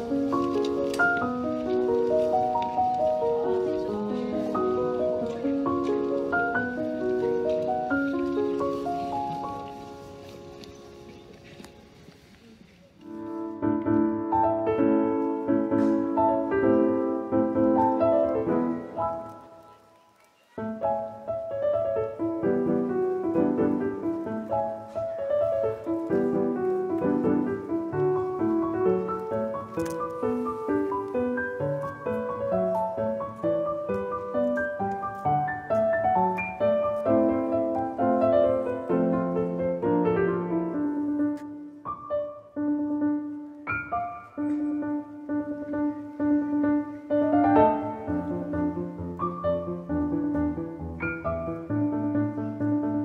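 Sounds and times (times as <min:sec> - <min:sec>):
piano music: 0:00.0 - 0:12.2, 0:13.0 - 0:53.0.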